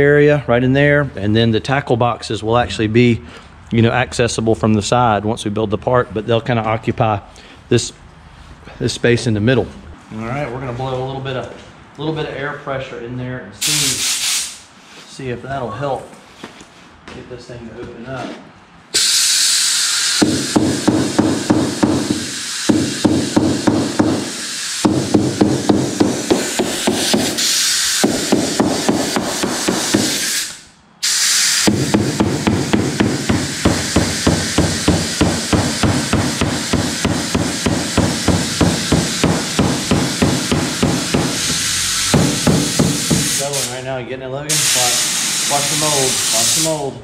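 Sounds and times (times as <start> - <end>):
compressed air hissing: 13.6 - 15.1, 18.9 - 43.8, 44.5 - 47.0
rapid regular knocking: 20.2 - 27.4, 28.0 - 30.2, 31.7 - 43.4.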